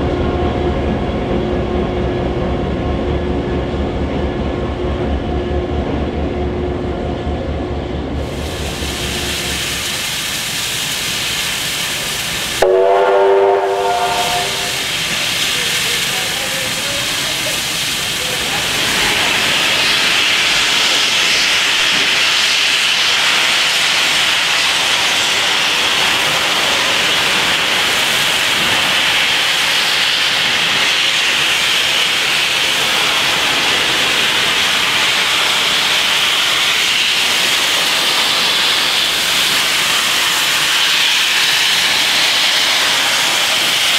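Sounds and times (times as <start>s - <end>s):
steam hissing: 8.2s - 43.9s
steam whistle blast: 12.6s - 15.0s.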